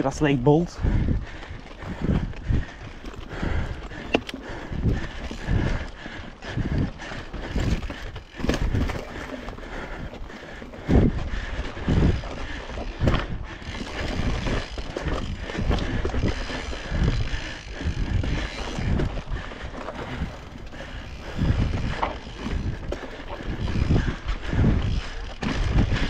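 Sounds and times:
wind on microphone: 0:00.0 - 0:10.2, 0:10.8 - 0:26.0
bike rattling: 0:00.0 - 0:26.0
bike tyres rolling on dirt: 0:00.0 - 0:26.0
low thuds of bike hitting bumps: 0:00.4 - 0:26.0.

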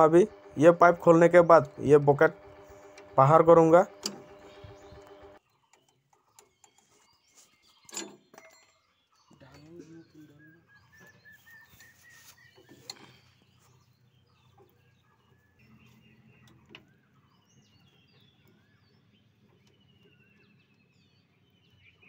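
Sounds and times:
spanner clicks: 0:00.0 - 0:06.8.

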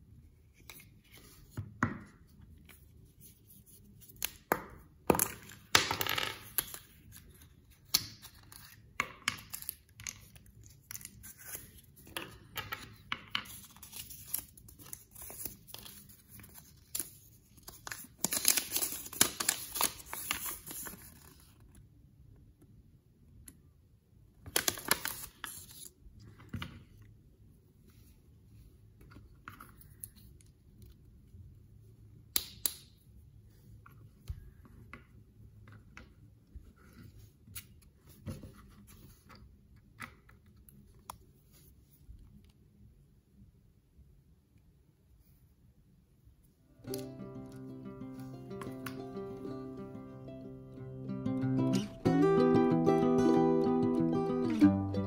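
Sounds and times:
plastic wrapper tearing and crinkling: 0:13.6 - 0:21.6, 0:24.5 - 0:25.9.

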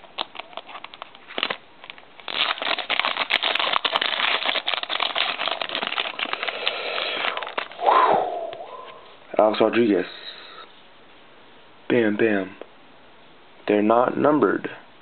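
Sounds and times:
plastic wrapper crinkling: 0:00.0 - 0:07.8.

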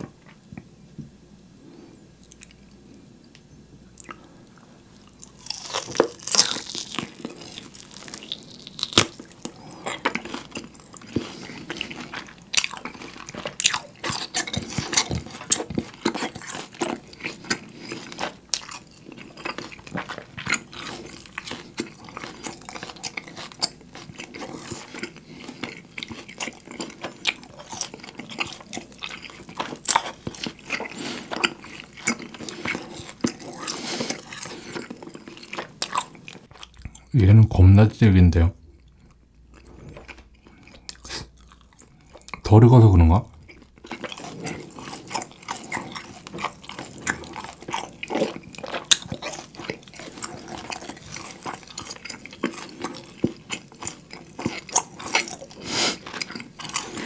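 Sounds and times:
close-up chewing of steak: 0:04.0 - 0:37.2, 0:38.7 - 0:42.4, 0:43.3 - 0:57.0.

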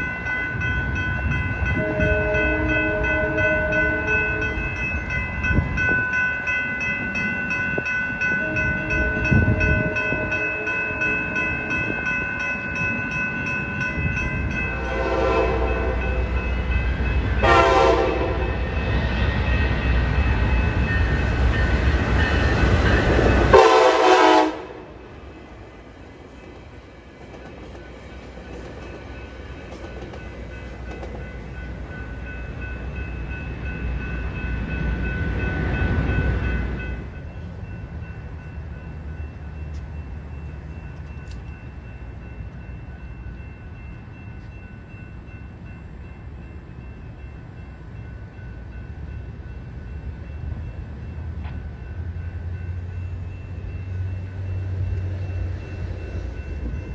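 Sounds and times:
railroad crossing bells ringing: 0:00.0 - 0:56.9
train passing rumble: 0:00.0 - 0:56.9
train horn blasts: 0:01.8 - 0:04.7, 0:08.4 - 0:11.3, 0:14.7 - 0:16.3, 0:17.4 - 0:18.7, 0:23.5 - 0:25.0
traffic: 0:18.0 - 0:56.9.

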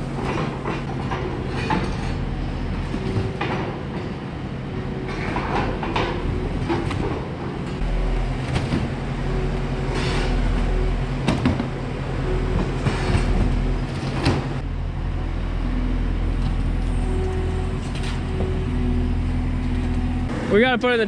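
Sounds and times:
diesel engine running: 0:00.0 - 0:20.8
metal clanks and scrapes: 0:00.2 - 0:03.8, 0:09.8 - 0:10.7, 0:12.6 - 0:14.6.

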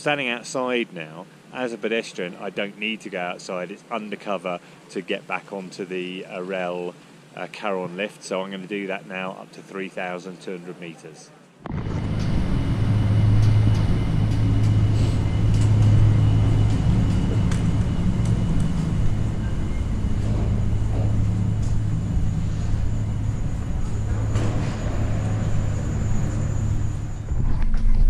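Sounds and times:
lift machinery humming: 0:11.6 - 0:27.8.

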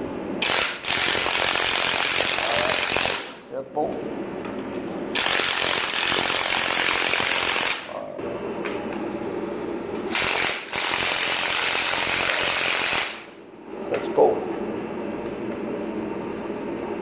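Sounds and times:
impact wrench hammering: 0:05.2 - 0:07.8.

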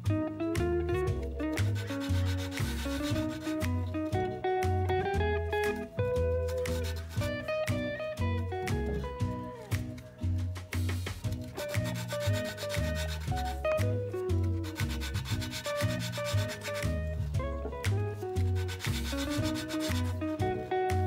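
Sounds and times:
music with bass and guitar: 0:00.0 - 0:21.0
valve lapping rasping rub: 0:01.6 - 0:03.8, 0:06.4 - 0:07.3, 0:11.4 - 0:17.2, 0:18.4 - 0:20.3.

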